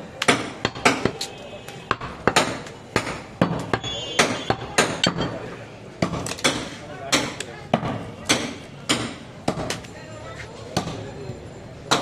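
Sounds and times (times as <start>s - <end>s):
cleaver chopping meat on wood: 0.2s - 1.3s, 1.9s - 5.4s, 6.0s - 9.8s.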